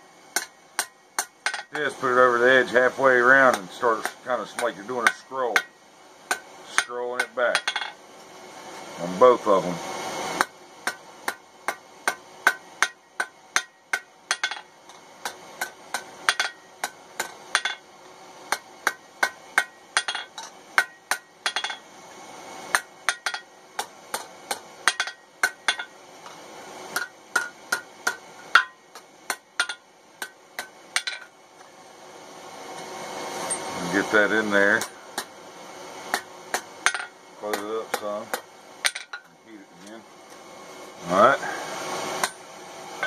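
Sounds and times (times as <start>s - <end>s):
hammer striking metal on anvil: 0.3s - 2.0s, 3.4s - 8.0s, 10.4s - 17.9s, 18.5s - 21.8s, 22.7s - 26.0s, 26.9s - 31.3s, 36.1s - 39.3s, 42.2s - 42.5s.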